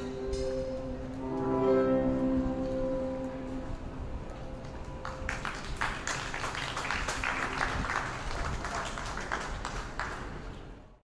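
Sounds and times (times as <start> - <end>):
music ending: 0.0 - 6.1
crowd clapping: 4.7 - 10.9.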